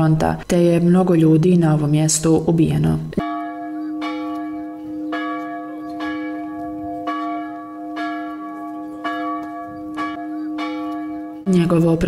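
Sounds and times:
church bell tolling: 0:03.2 - 0:12.0.

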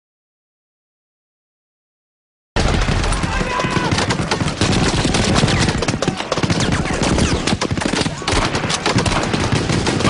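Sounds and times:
machine-gun bursts: 0:02.6 - 0:10.0.

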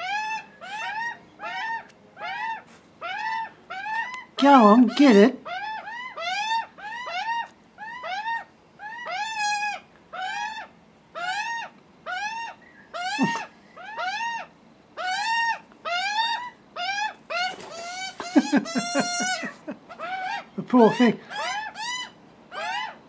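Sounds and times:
young magpie squawking: 0:00.0 - 0:23.0.

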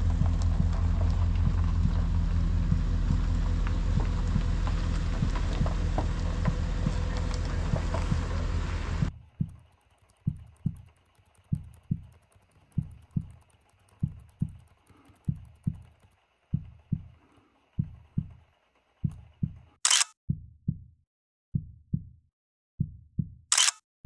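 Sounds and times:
heartbeat thumps: 0:00.0 - 0:09.7, 0:10.3 - 0:10.9, 0:11.5 - 0:13.4, 0:14.0 - 0:17.2, 0:17.8 - 0:18.4, 0:19.0 - 0:20.9, 0:21.5 - 0:22.2, 0:22.8 - 0:23.5
sharp click: 0:19.8 - 0:20.2, 0:23.5 - 0:23.8.

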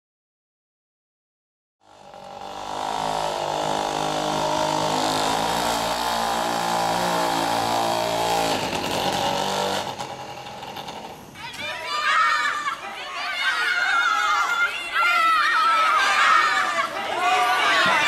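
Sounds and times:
small petrol engine running: 0:01.8 - 0:11.3.

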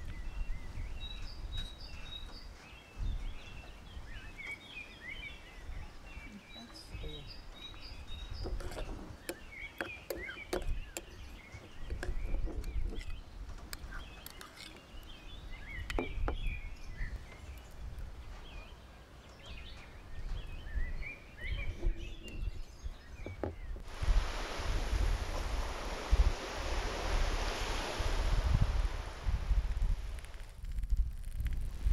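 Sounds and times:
wind rumble on microphone: 0:00.0 - 0:04.4, 0:10.5 - 0:14.3, 0:15.0 - 0:18.7, 0:19.4 - 0:31.9
birds chirping: 0:00.0 - 0:23.9.

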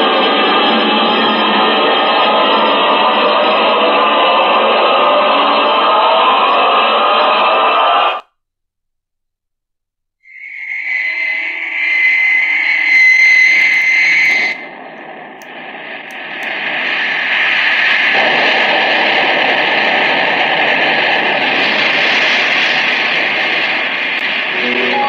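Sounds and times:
high steady whine: 0:10.3 - 0:25.0
rocket hissing roar: 0:13.7 - 0:25.0.

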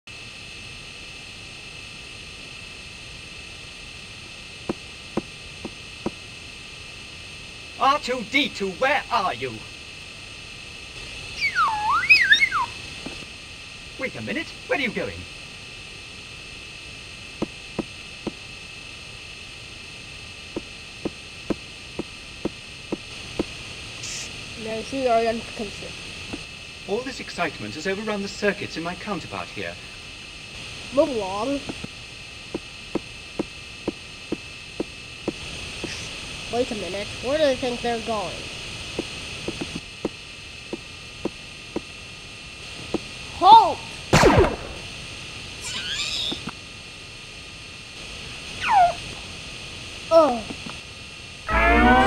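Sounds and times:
recording hiss and hum: 0:00.0 - 0:52.0.

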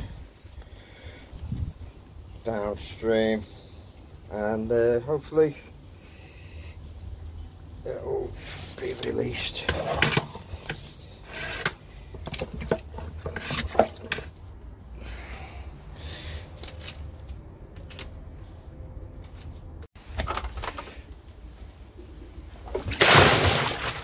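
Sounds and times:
drain rods knocking and scraping: 0:08.9 - 0:14.5
water splashing into manhole: 0:22.6 - 0:24.0.

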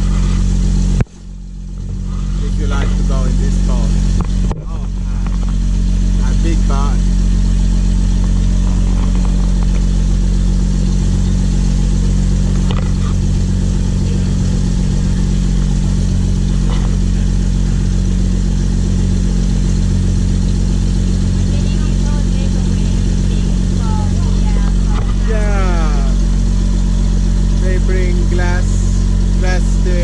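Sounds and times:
ferry engine drone: 0:00.0 - 0:30.0
water rushing along hull: 0:00.0 - 0:30.0.

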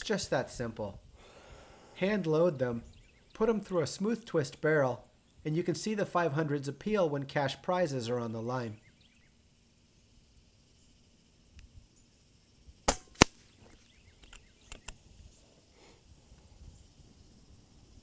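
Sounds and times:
air rifle shot cracks: 0:12.9 - 0:13.5.

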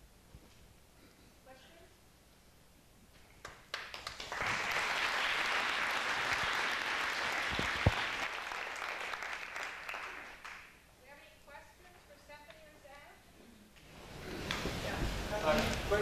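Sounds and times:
audience applauding: 0:03.4 - 0:10.8.

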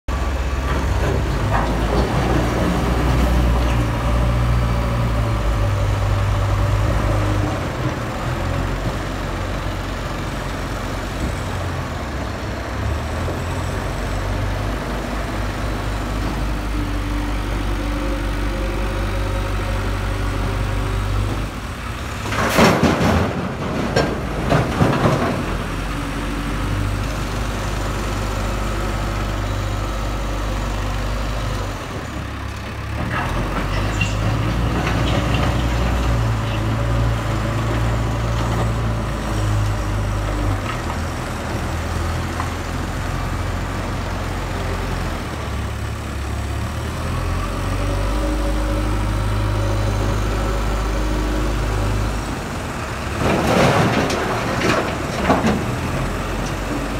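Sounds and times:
diesel engine running: 0:00.1 - 0:56.9
rubble crashing into truck bed: 0:22.3 - 0:25.7.

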